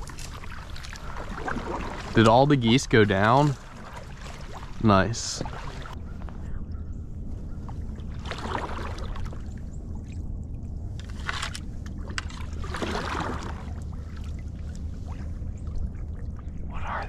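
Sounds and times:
paddle splashing in water: 0:00.0 - 0:06.0, 0:08.1 - 0:09.6, 0:11.0 - 0:15.4
steady low rumble: 0:00.0 - 0:17.0.

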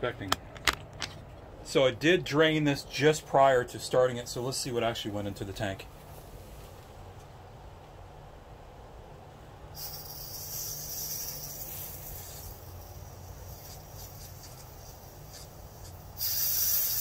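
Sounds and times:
compressed air hissing from valve: 0:09.7 - 0:17.0.

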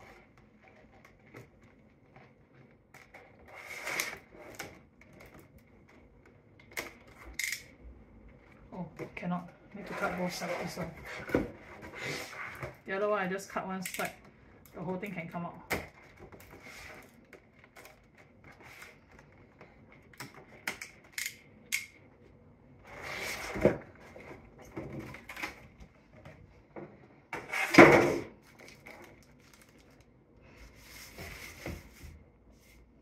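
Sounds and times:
plastic packaging crinkling: 0:28.4 - 0:30.2.

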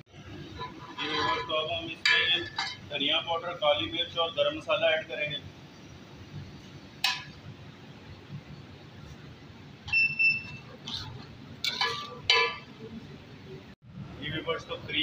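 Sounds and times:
metal ladle clinking on pot: 0:01.0 - 0:02.8, 0:07.0 - 0:07.4, 0:11.6 - 0:12.7.

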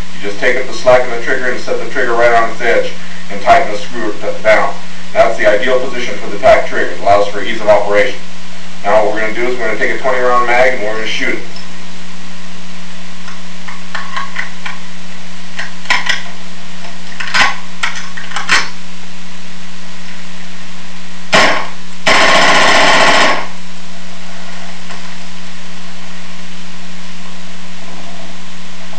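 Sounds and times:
rifle gunshots: 0:21.3 - 0:23.6.

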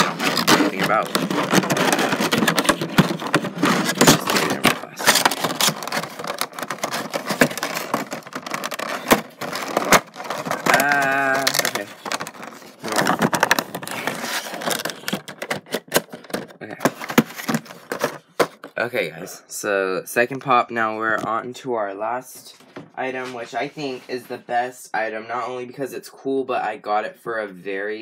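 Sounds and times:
plastic and cardboard packaging handled: 0:00.0 - 0:18.9.

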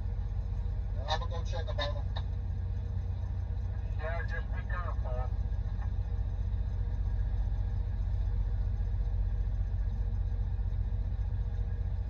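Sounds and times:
road noise: 0:00.0 - 0:09.2
faint steady hum: 0:00.0 - 0:12.0
truck engine rumble: 0:00.0 - 0:12.0.

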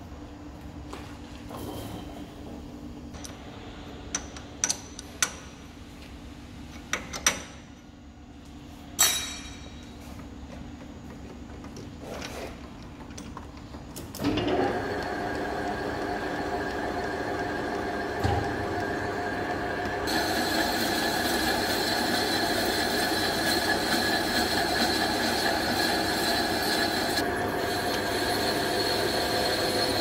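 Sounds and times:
lathe running with gear whine: 0:14.2 - 0:30.0.

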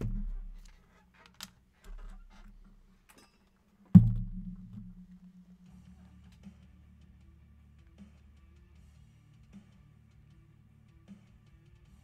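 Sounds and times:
box knocking on desk: 0:04.0 - 0:05.2.

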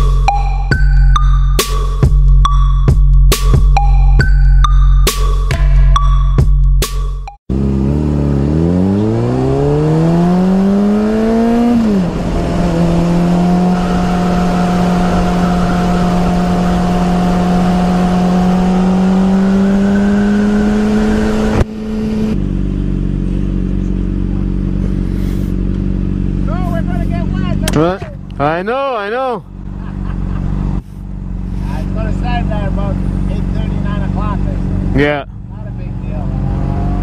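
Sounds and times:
motorcycle engine revving: 0:07.5 - 0:28.7, 0:29.4 - 0:37.0.

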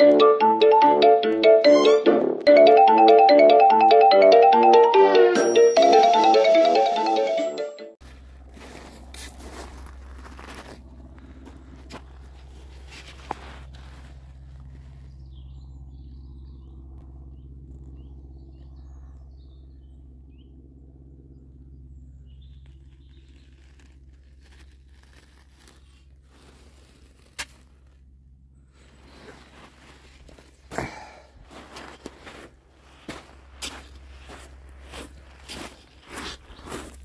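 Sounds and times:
footsteps crunching: 0:08.0 - 0:15.2, 0:22.6 - 0:28.0, 0:28.8 - 0:37.0
small birds chirping: 0:21.4 - 0:23.8, 0:35.5 - 0:37.0.

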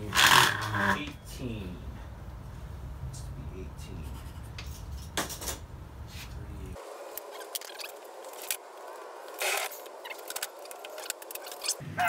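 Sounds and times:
low background hum: 0:00.0 - 0:12.0
tools scraping and clicking: 0:07.1 - 0:08.6, 0:09.3 - 0:11.8.

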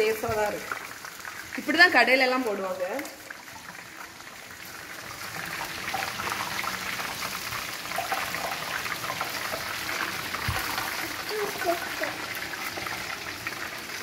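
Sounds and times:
banana slices sizzling in oil: 0:00.0 - 0:14.0.

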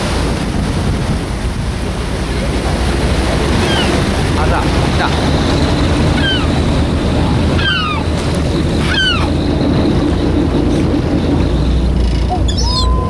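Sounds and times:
boat engine running: 0:00.0 - 0:13.0
water noise: 0:00.0 - 0:13.0
wind: 0:00.0 - 0:13.0
bird calling: 0:03.4 - 0:13.0.

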